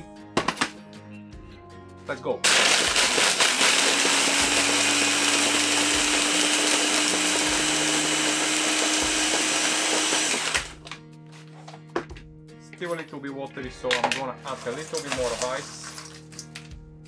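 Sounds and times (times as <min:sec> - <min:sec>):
blender whirring: 0:02.4 - 0:10.8.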